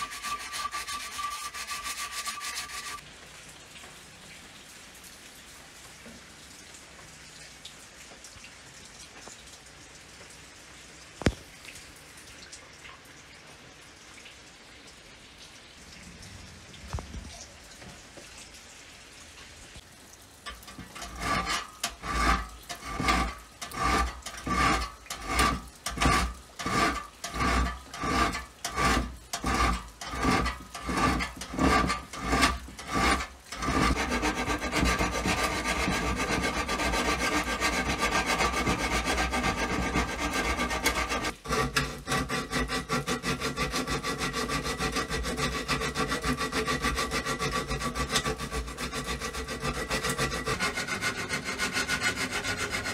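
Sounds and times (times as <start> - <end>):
hand tool scraping metal: 0.0 - 3.0, 20.5 - 52.9.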